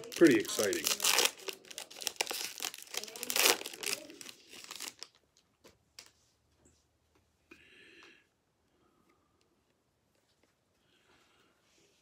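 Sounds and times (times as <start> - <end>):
wrapper crinkling and tearing: 0.0 - 5.5.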